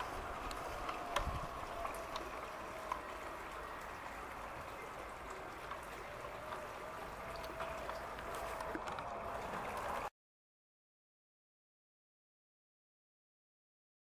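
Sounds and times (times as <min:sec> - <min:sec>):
wheels clicking over rail joints: 0:00.0 - 0:10.1.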